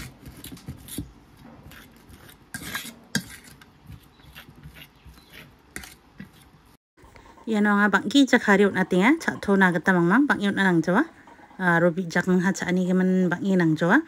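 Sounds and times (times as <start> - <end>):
fork mashing potato on plate: 0.0 - 6.8.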